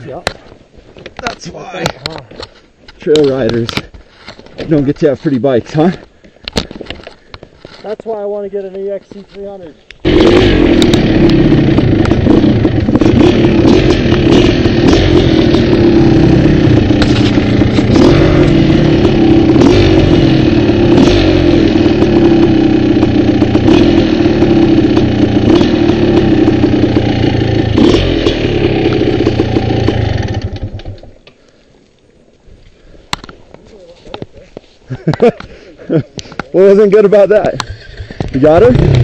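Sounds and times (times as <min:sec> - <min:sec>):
dirt bike engine: 0:04.6 - 0:31.4, 0:35.0 - 0:39.0.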